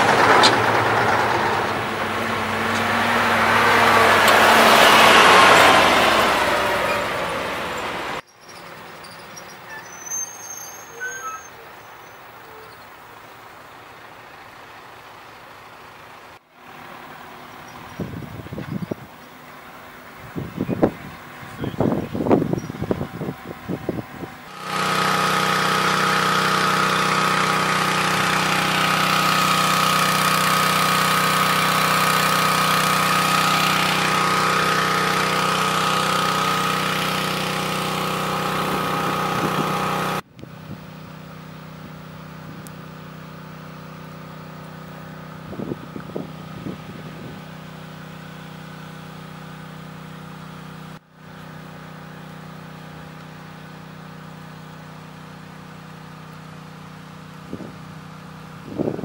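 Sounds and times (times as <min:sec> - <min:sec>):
fire truck engine running: 0:00.0 - 0:59.0.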